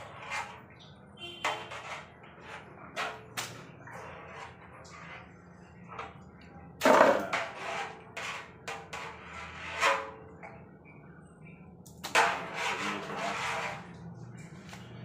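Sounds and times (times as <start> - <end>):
metal utensil scraping steel wok: 0.0 - 6.2, 6.8 - 10.4, 12.0 - 14.0.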